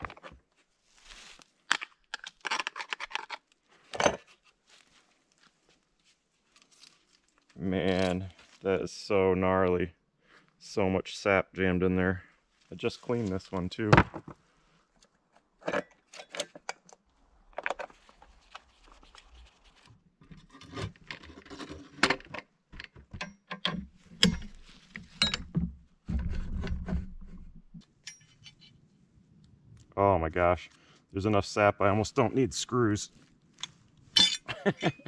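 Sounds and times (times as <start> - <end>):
metal clicks and rattles: 21.0 - 25.6.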